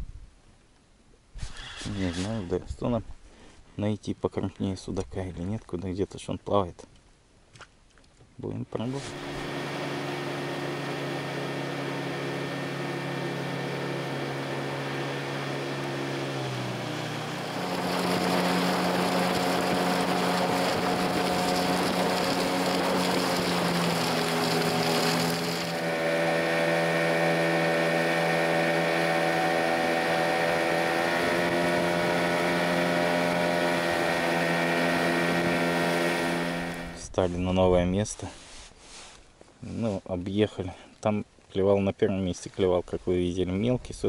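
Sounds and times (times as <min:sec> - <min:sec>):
outboard motor running: 0:08.9 - 0:37.2.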